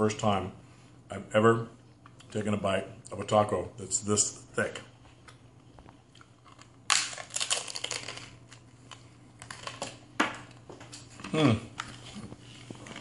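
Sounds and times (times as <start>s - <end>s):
chewing crackling crunches: 5.2s - 9.9s
crunching taco shell: 6.2s - 10.0s.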